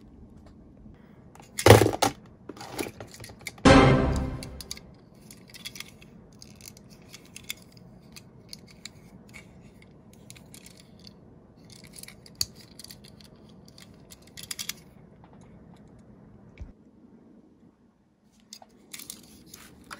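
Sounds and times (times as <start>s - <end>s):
toy vehicles handling clicks: 1.4s - 3.6s, 4.7s - 14.9s, 18.4s - 19.9s.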